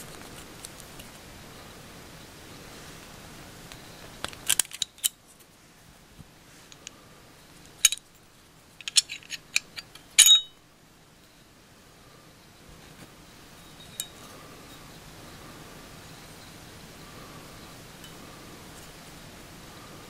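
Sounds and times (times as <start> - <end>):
pistol parts clicking and clinking: 4.3 - 5.2, 7.7 - 8.1, 8.8 - 10.5.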